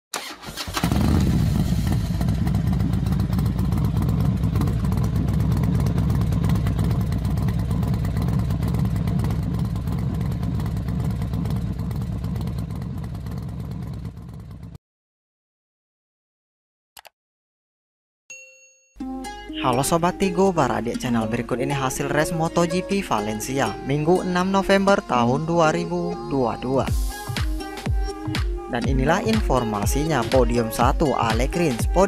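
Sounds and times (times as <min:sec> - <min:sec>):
racing motorcycle engines: 0:00.7 - 0:14.7.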